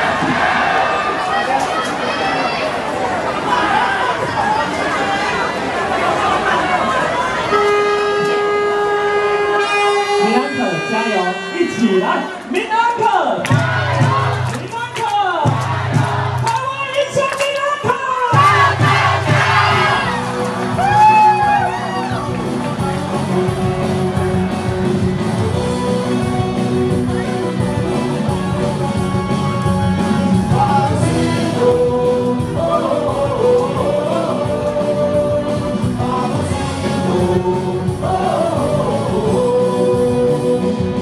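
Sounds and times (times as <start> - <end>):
crowd singing and shouting: 0.0 - 41.0
air horn tones: 7.4 - 12.4.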